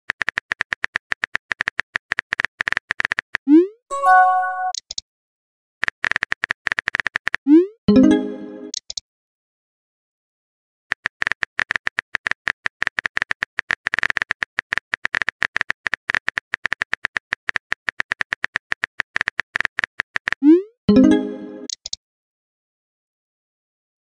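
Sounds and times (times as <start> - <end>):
brief pitched tone: 3.9 - 4.8
phone keyboard typing clicks: 10.9 - 20.4.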